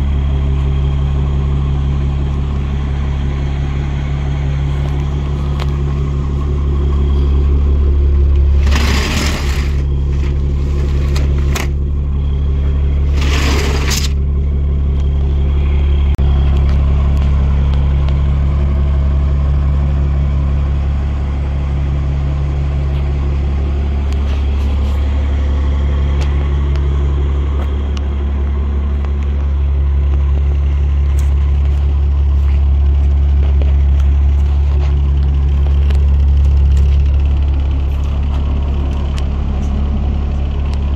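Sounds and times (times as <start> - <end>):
diesel engine idling: 0.0 - 40.9
scraping rattles: 8.4 - 11.8, 13.0 - 14.2.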